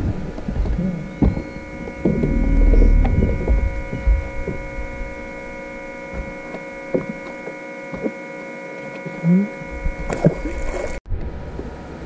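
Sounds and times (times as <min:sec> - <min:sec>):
steady electric hum: 0:00.0 - 0:12.0
short rising squeak: 0:01.4 - 0:06.9.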